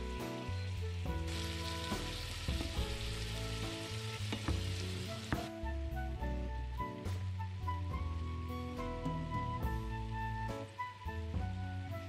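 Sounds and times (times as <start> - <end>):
meat sizzling in a frying pan: 0.0 - 5.6
background music: 0.0 - 12.0
wooden spatula knocking pan: 4.3 - 5.5.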